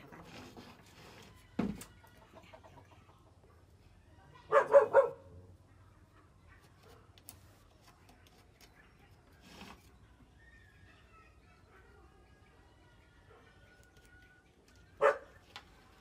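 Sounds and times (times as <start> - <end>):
dog barking: 4.4 - 5.5, 15.0 - 15.4.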